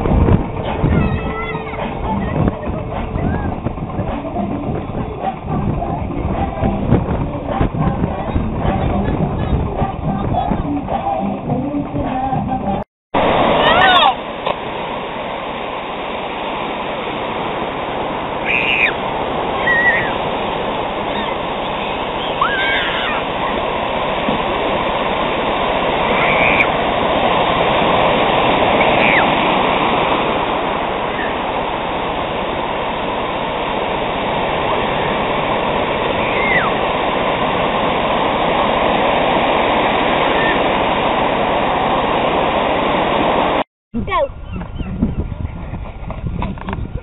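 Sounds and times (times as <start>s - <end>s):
ocean surf breaking: 0.0s - 44.2s
high-pitched calls: 18.4s - 20.2s, 21.1s - 23.3s, 26.1s - 26.7s, 28.7s - 29.4s, 36.2s - 36.8s.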